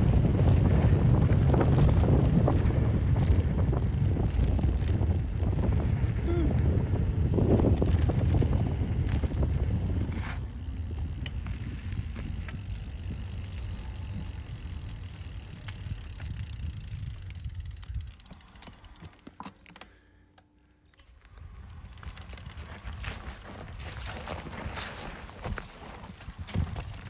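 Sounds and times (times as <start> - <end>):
wind rumble on microphone: 0.0 - 18.3, 21.4 - 27.0
bike clattering and clicking: 0.0 - 27.0.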